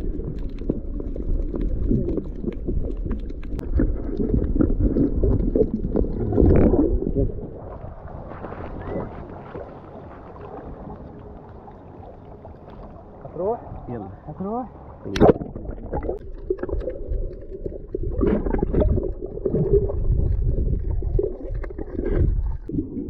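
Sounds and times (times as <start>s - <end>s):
muffled underwater churning: 0.0s - 23.0s
water gently lapping: 0.0s - 23.0s.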